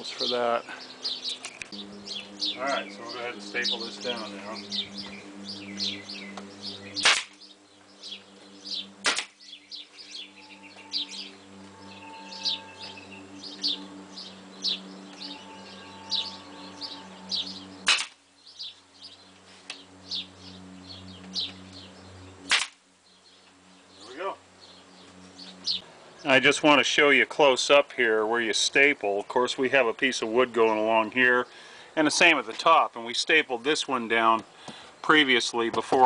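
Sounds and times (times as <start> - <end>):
low steady hum: 0.0 - 35.6
birds chirping: 0.0 - 36.0
staple gun firing: 9.0 - 9.3, 17.9 - 18.2.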